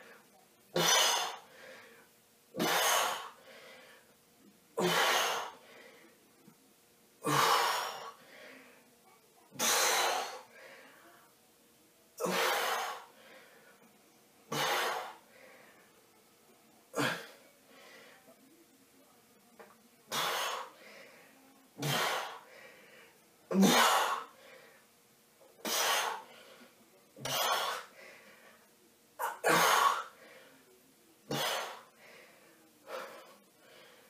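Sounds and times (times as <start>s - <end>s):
man breathing sharply: 1.5s - 2.1s, 3.4s - 4.1s, 27.6s - 28.6s, 32.0s - 34.0s.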